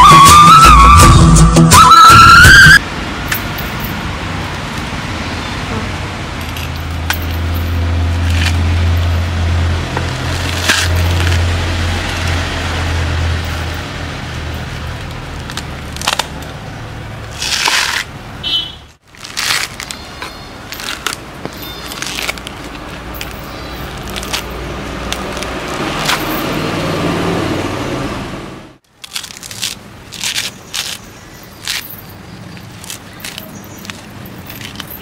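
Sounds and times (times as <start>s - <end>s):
coconut husk ripping on metal spike: 8.2s - 9.2s, 9.9s - 12.6s, 13.6s - 16.6s, 17.3s - 18.2s, 19.0s - 26.6s, 28.8s - 35.0s.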